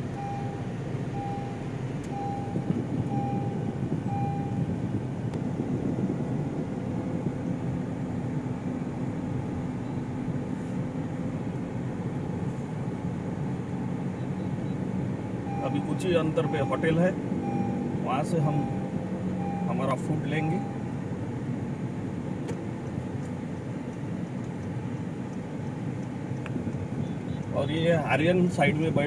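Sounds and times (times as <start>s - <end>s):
car road and engine noise: 0.0s - 29.0s
short beeps: 0.1s - 4.7s, 15.5s - 20.9s.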